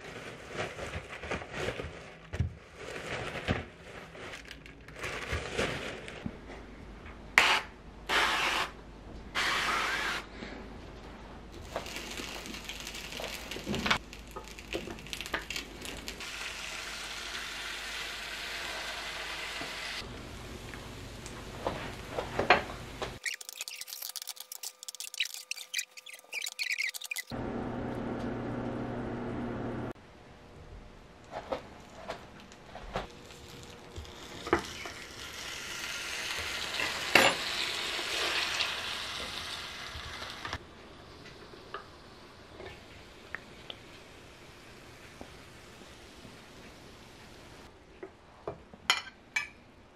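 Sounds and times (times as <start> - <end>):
rice sizzling on hot plates: 11.6 - 23.2, 33.2 - 47.6.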